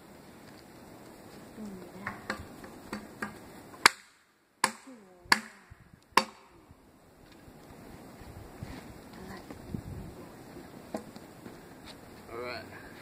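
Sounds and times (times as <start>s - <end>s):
machete chopping wood: 2.2s - 6.5s.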